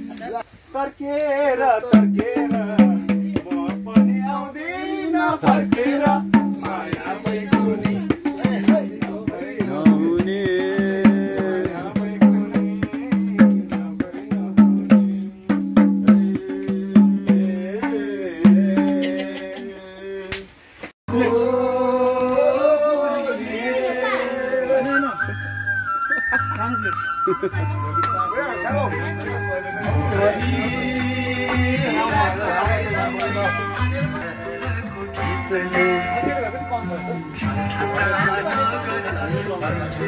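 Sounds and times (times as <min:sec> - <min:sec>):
voices singing: 0:00.0 - 0:26.6, 0:27.4 - 0:40.0
barrel hand drum playing: 0:01.9 - 0:04.6, 0:05.2 - 0:19.4.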